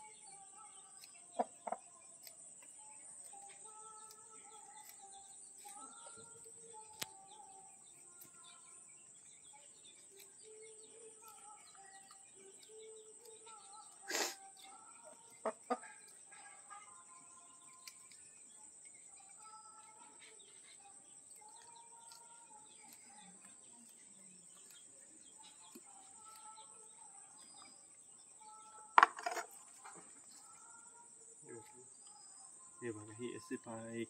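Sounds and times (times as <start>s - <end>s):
insects buzzing: 0.0s - 34.0s
birds calling: 0.8s - 34.0s
chickens clucking: 1.0s - 2.3s, 14.0s - 16.9s.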